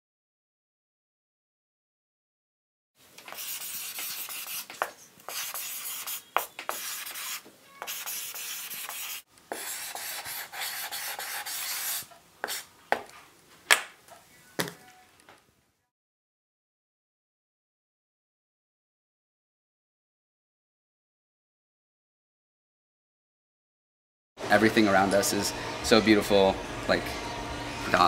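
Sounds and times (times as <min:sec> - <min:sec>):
rubbing or scraping strokes: 0:03.2 - 0:12.7.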